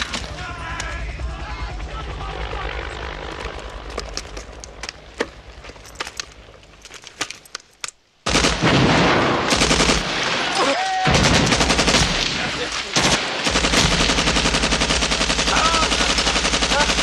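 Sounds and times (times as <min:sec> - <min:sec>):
low rumble: 0:00.0 - 0:06.9
machine-gun fire: 0:08.2 - 0:10.5, 0:11.1 - 0:17.0.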